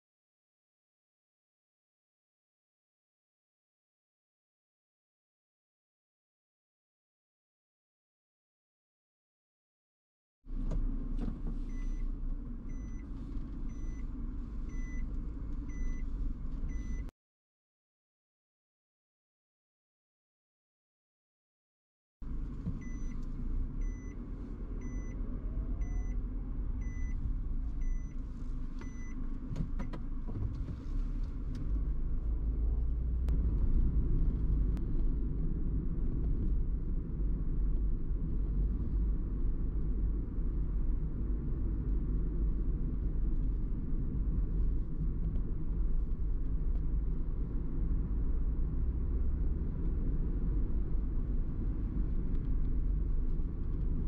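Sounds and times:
car engine and road noise: 10.5 - 17.1, 22.2 - 54.0
short electronic beeps: 24.8 - 25.2, 25.8 - 26.2, 26.8 - 27.2.

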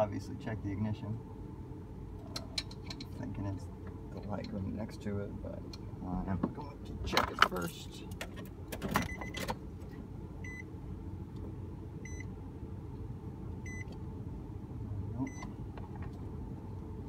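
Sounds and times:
dashboard warning chime beeping: 9.0 - 9.5, 10.4 - 10.7, 12.0 - 12.3, 13.6 - 13.9, 15.2 - 15.5.

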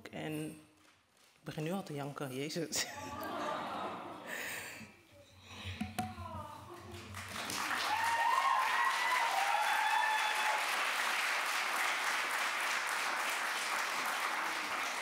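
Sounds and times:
audience applauding: 6.7 - 15.0.

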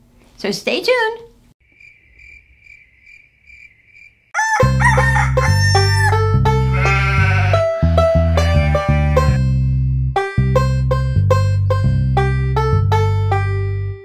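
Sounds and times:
rooster crowing: 4.3 - 9.4.

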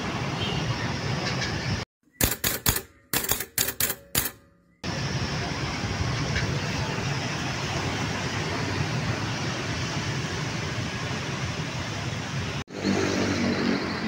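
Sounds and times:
road traffic noise: 0.0 - 14.0
sharp clicks: 2.2 - 4.4
motorcycles passing: 6.6 - 14.0.

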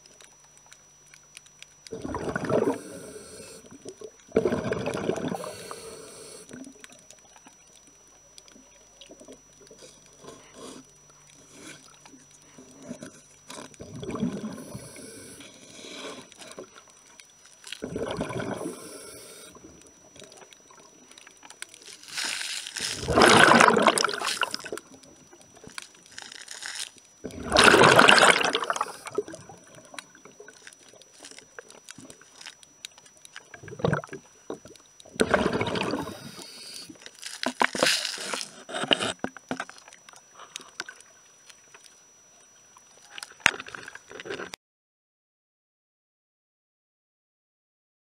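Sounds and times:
quiet gurgling: 0.0 - 44.6
gushes of air bubbles underwater: 1.9 - 2.8, 4.3 - 5.5, 13.8 - 14.7, 17.8 - 18.8, 23.0 - 24.8, 27.2 - 29.8, 33.5 - 34.2, 35.2 - 36.2.

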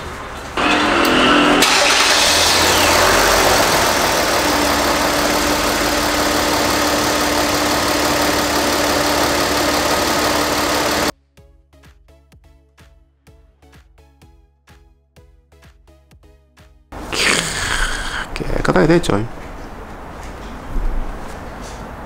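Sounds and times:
car engine idling: 0.6 - 11.1
steady hum: 0.6 - 11.1.

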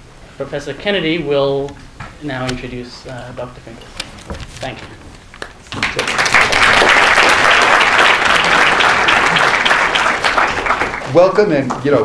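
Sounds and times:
large audience applauding: 5.3 - 12.0.

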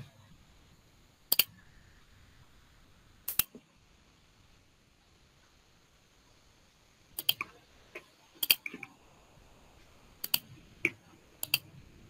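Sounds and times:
computer mouse clicking: 1.3 - 1.6, 3.3 - 3.6, 7.2 - 7.6, 8.4 - 8.9, 10.2 - 11.7.

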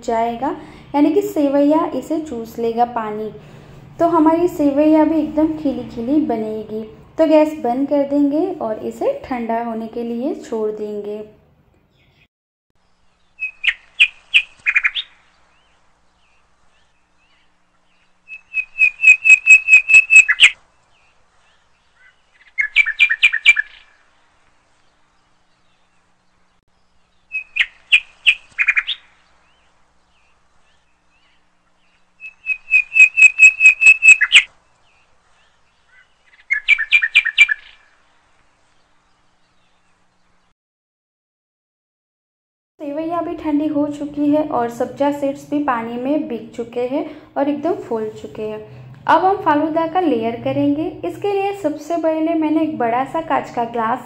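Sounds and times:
bird chirping: 11.8 - 24.1, 24.7 - 40.5.

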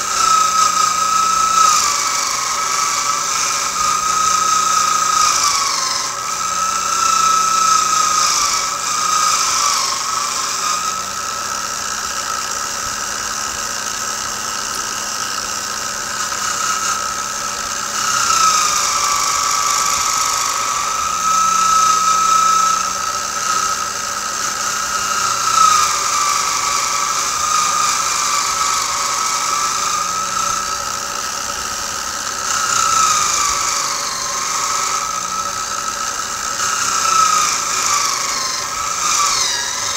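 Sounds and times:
wire wheel whining: 0.0 - 39.9.

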